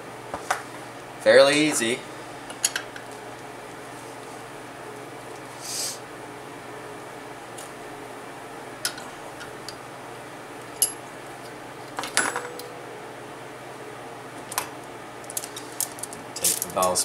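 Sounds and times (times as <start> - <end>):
small steel parts clinking: 15.2 - 16.8.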